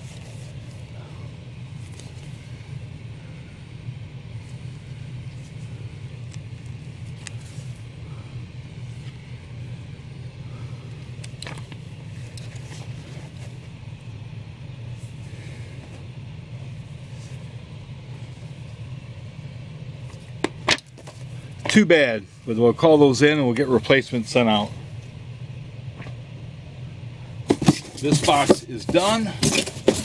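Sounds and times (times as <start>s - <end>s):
low room hum: 0.0s - 30.0s
paper and cardboard rustling: 27.5s - 30.0s.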